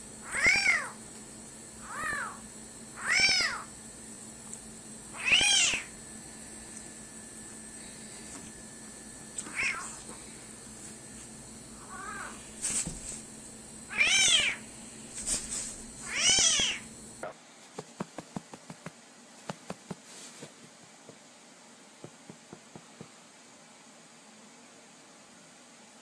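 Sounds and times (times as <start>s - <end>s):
cat meowing: 0.2s - 1.0s, 1.8s - 2.4s, 3.0s - 3.7s, 5.2s - 5.9s, 9.5s - 10.0s, 11.8s - 12.4s, 13.9s - 14.6s, 16.1s - 16.8s.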